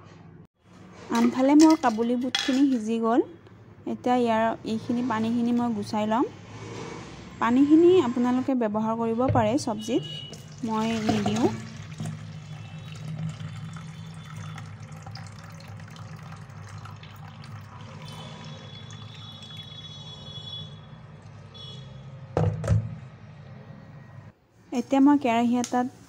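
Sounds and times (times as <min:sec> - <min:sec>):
water pouring into bowl: 0:10.3 - 0:20.3
pot knocking: 0:10.7 - 0:12.2.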